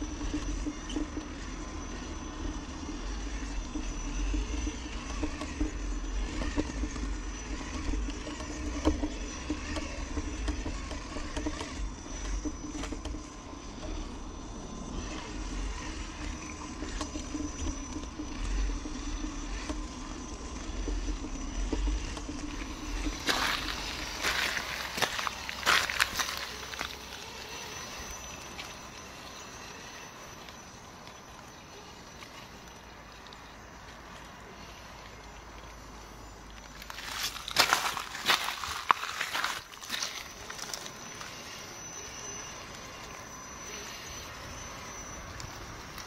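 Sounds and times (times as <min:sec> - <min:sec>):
electric motor hum: 0:00.0 - 0:46.0
stones crunching under wheels: 0:20.7 - 0:46.0.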